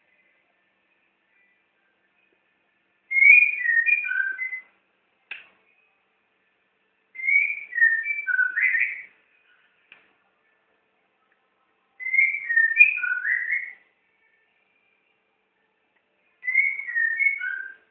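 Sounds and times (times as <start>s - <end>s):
bird singing whistled notes: 3.1s - 4.8s, 7.2s - 9.7s, 12.0s - 14.0s, 16.4s - 17.9s.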